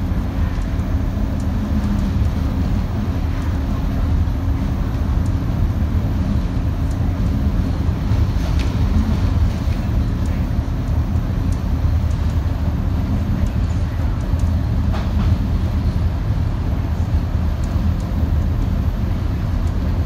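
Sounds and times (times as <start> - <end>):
bus engine drone: 0.0 - 20.0
road noise: 0.0 - 20.0.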